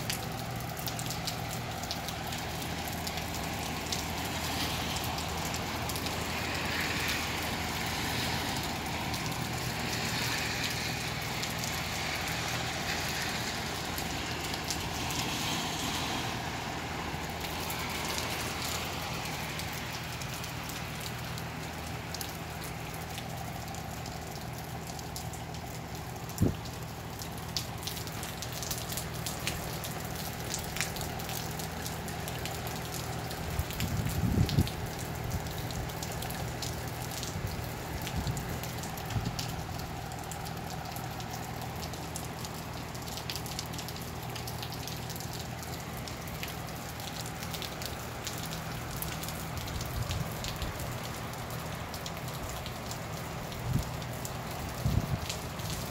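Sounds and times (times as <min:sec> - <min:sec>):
steady rain falling: 0:00.0 - 0:55.9
raindrop taps: 0:17.4 - 0:55.9.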